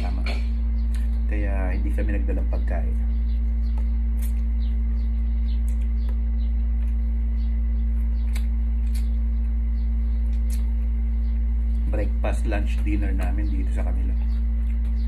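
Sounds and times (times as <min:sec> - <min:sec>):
steady low hum: 0:00.0 - 0:15.0
people chewing: 0:05.4 - 0:11.0, 0:14.3 - 0:15.0.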